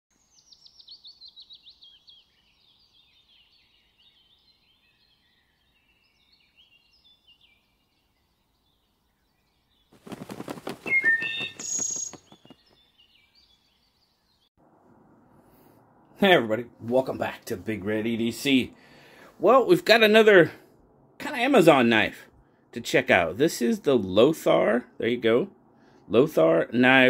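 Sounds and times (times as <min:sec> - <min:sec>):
bird twittering: 0:08.6 - 0:14.4
bird rattle call: 0:10.0 - 0:12.6
squeaky bird chirps: 0:10.1 - 0:12.7
bird whistling descending notes: 0:10.7 - 0:12.6.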